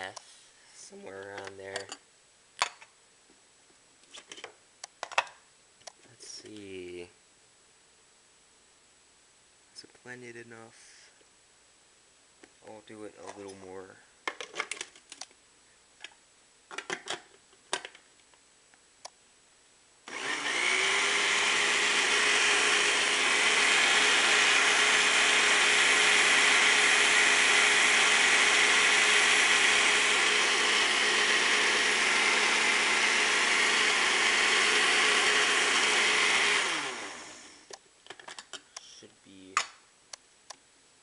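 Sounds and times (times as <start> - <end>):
blender motor running: 20.1 - 37.7.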